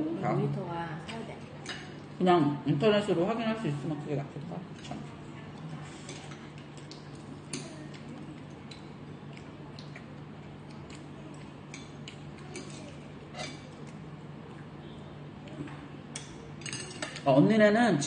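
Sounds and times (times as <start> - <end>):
steady low hum: 0.0 - 18.0
chopsticks clicking on a plate: 6.1 - 14.0, 16.1 - 17.2.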